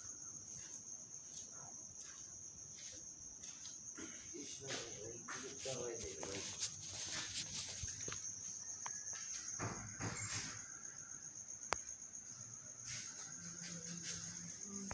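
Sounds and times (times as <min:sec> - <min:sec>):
cricket trilling: 0:00.0 - 0:14.9
soft rustles: 0:04.8 - 0:09.0.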